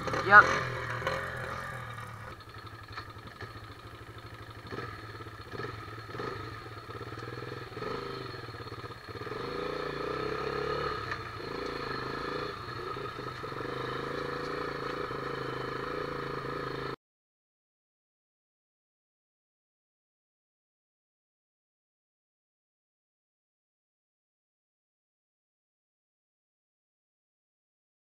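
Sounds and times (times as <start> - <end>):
off-road vehicle engine running: 0.0 - 17.0.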